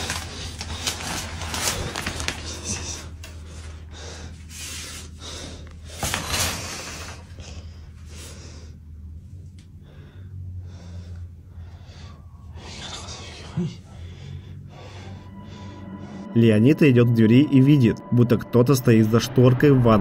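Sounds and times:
man breathing heavily: 0.0 - 16.4
steady low hum: 0.0 - 20.0.

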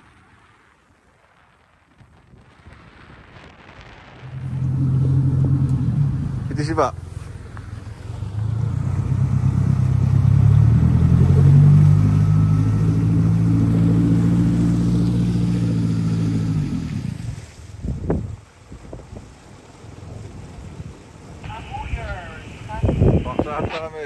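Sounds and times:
boat motor running: 4.2 - 17.4.

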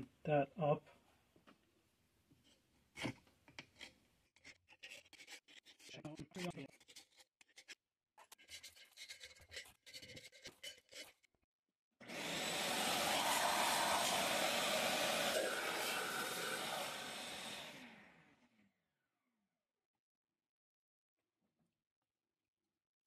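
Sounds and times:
scraping on cast iron: 3.6 - 11.2.

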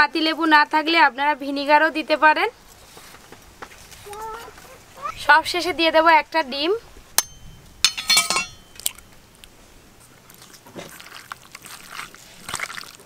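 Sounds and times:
clinks: 7.2 - 9.0
hands mixing wet marinade: 10.0 - 13.0.

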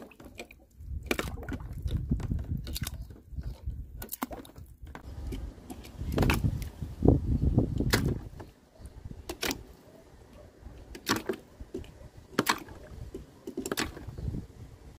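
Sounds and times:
toy cars splashing into water: 12.3 - 12.8, 13.6 - 14.2.

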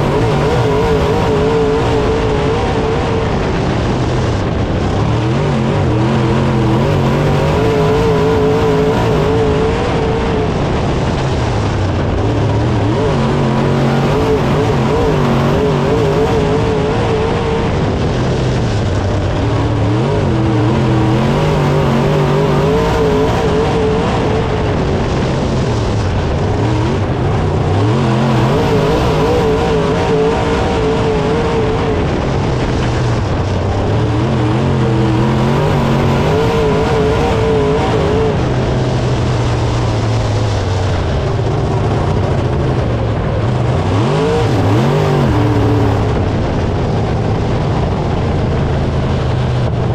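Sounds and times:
race car engine revving: 0.0 - 49.9.

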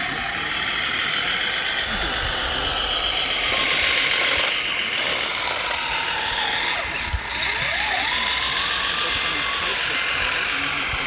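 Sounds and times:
toy truck electric motor whirring: 0.0 - 11.0
wheels on gravel: 0.0 - 11.0.

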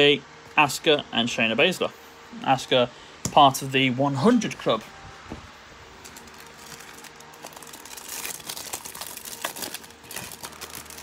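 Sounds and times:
foil wrapper crinkling: 6.0 - 11.0.

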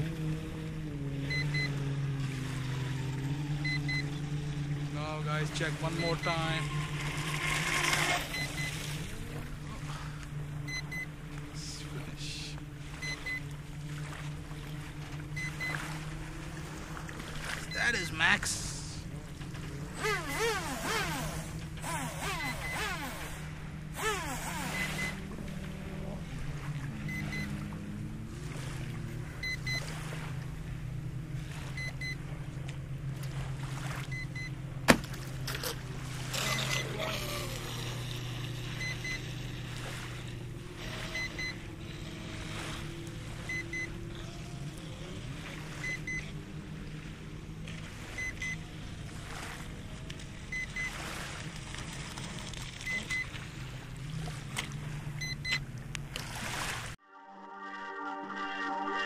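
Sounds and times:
toy speedboat motor revving: 0.0 - 18.4, 19.3 - 32.3, 33.2 - 47.2, 47.8 - 56.9
alarm double beeps: 3.6 - 4.1, 5.7 - 6.4, 8.3 - 8.9, 10.7 - 11.1, 13.0 - 13.5, 15.4 - 15.8, 22.0 - 23.0, 24.2 - 25.2, 27.1 - 27.6, 38.8 - 39.3, 40.9 - 41.7.

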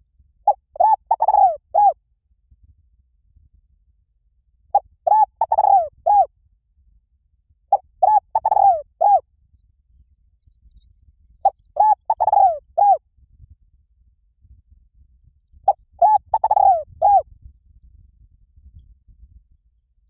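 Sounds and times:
dove cooing: 0.5 - 2.0, 5.0 - 6.3, 7.7 - 9.2, 11.7 - 13.0, 15.7 - 17.2.

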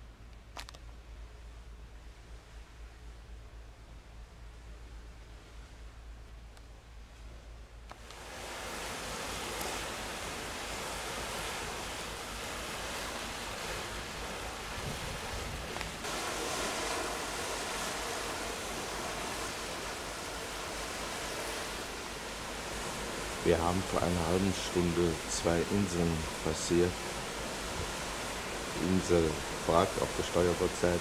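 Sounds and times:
wind and sea rushing: 0.0 - 31.0
wind buffeting microphone: 8.2 - 31.0.

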